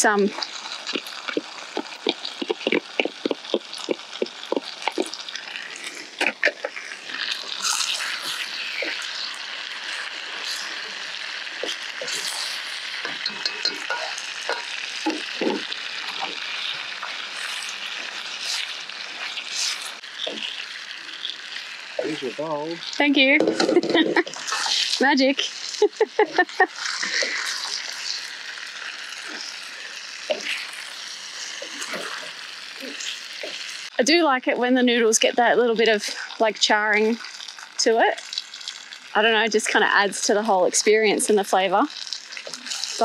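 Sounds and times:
food sizzling in hot pan: 0.0s - 43.0s
utensil scraping against pan: 11.6s - 20.7s, 23.4s - 25.6s.

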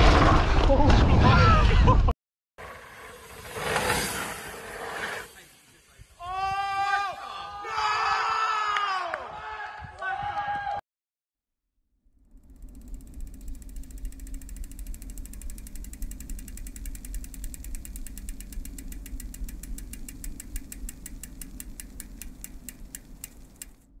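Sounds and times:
steady low hum: 12.1s - 23.9s
bicycle hub ratchet ticking: 12.2s - 23.9s.

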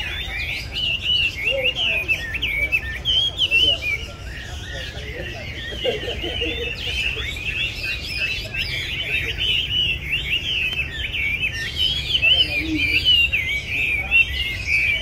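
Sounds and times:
bird singing whistled phrases: 0.0s - 6.0s, 6.6s - 15.0s.

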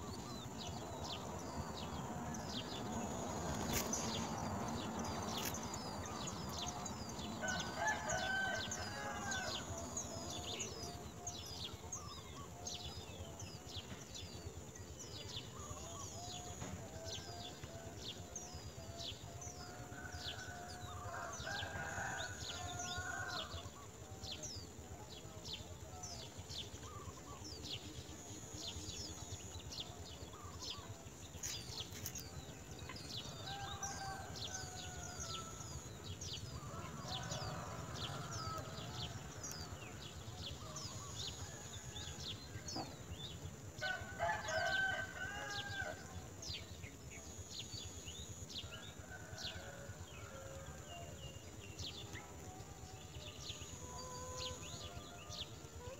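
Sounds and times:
rooster crowing: 7.4s - 10.0s, 19.6s - 23.6s, 33.3s - 35.7s, 43.8s - 46.1s.

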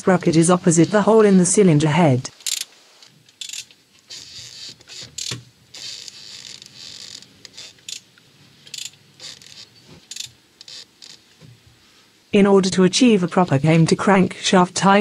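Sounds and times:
mechanical clicking and scraping: 2.3s - 11.6s.

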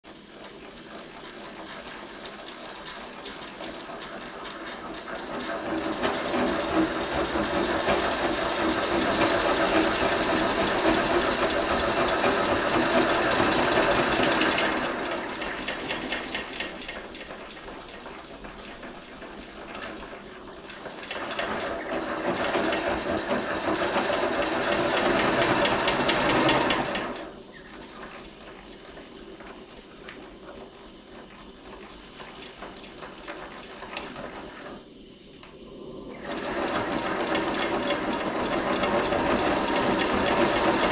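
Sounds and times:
model steam engine clattering: 0.3s - 27.3s, 36.2s - 40.9s.

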